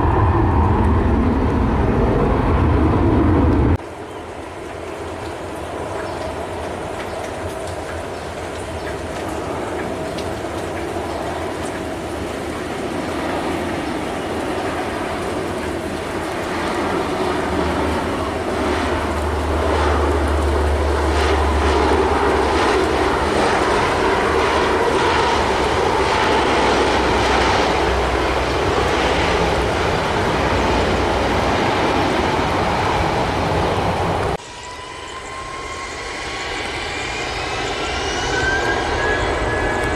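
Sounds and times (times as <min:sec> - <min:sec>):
jet engines whining: 0:00.0 - 0:39.9
turboprop plane passing: 0:00.0 - 0:39.9.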